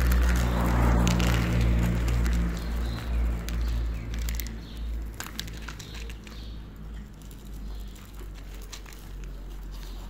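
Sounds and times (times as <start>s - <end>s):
low rumble: 0.0s - 5.1s
cat crunching dry kibble: 0.0s - 10.0s.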